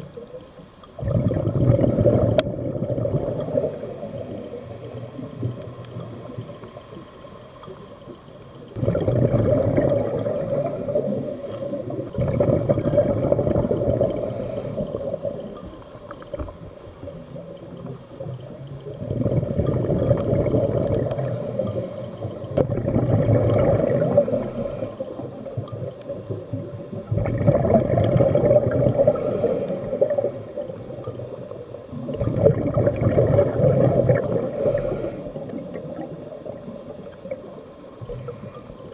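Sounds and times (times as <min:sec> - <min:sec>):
regulator exhaled bubbles rushing: 0:01.0 - 0:05.5, 0:08.7 - 0:15.5, 0:18.9 - 0:21.4, 0:22.4 - 0:25.4, 0:26.9 - 0:29.2, 0:32.0 - 0:34.7.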